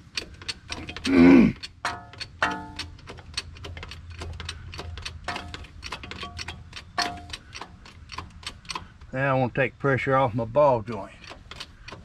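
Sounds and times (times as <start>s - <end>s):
metal tools clinking: 1.8s - 3.0s.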